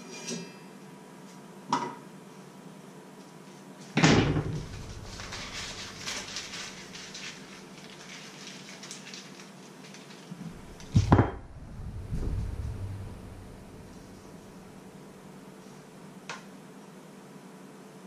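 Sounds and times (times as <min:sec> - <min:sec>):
foil wrapper crinkling: 0:04.5 - 0:11.1.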